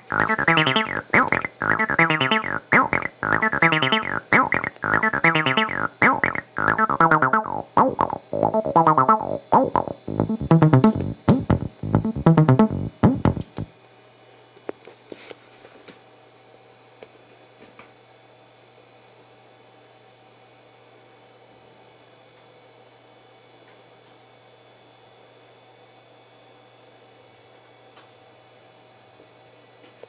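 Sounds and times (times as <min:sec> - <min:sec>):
low mains hum: 0:00.0 - 0:13.7
synthesizer acid bassline: 0:00.0 - 0:13.7.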